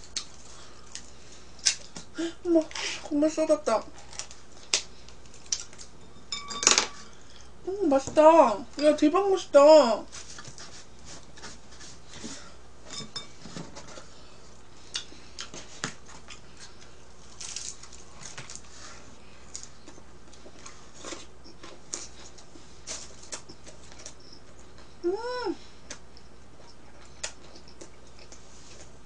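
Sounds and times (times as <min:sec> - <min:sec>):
person chewing pizza: 0:00.0 - 0:02.1, 0:04.0 - 0:06.0, 0:13.9 - 0:25.0, 0:25.7 - 0:29.0.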